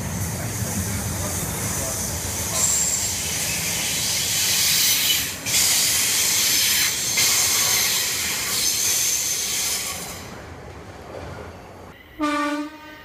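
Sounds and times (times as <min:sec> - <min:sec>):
train wheels hissing on rails: 0:00.0 - 0:10.4
brief high wheel squeal: 0:02.5 - 0:03.8.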